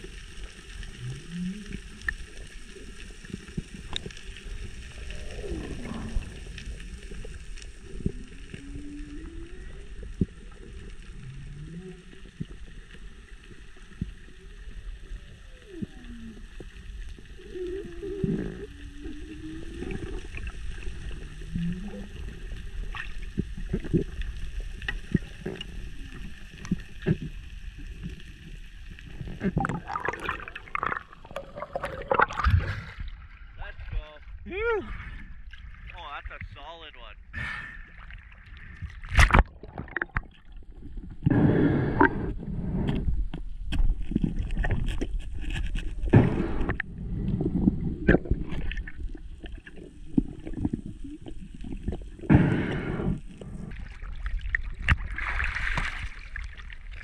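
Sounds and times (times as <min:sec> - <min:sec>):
steady underwater noise: 0:00.0 - 0:57.0
whale song moaning calls: 0:05.0 - 0:06.5, 0:08.1 - 0:12.4, 0:15.1 - 0:20.4.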